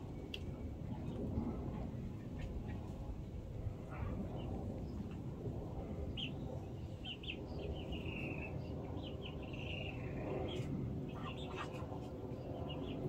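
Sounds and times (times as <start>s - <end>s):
distant jet engine rumble: 0.0s - 13.0s
small birds chirping: 6.1s - 13.0s.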